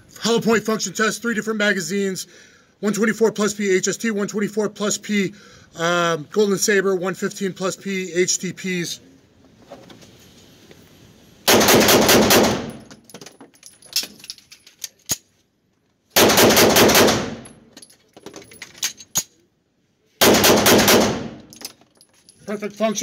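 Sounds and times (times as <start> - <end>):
pistol shots with echo: 11.5 - 12.8, 16.2 - 17.5, 20.2 - 21.4.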